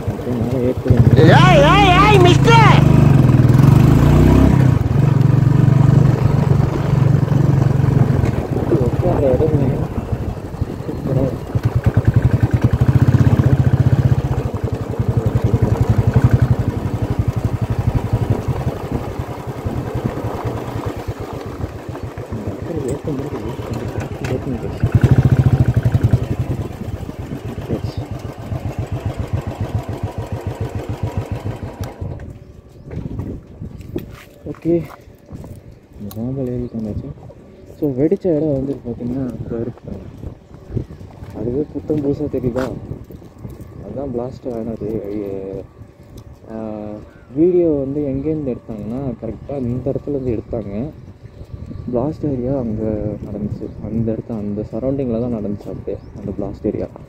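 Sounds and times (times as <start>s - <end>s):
deep rumble: 0.0s - 29.7s
motorcycle engine running: 0.0s - 34.0s.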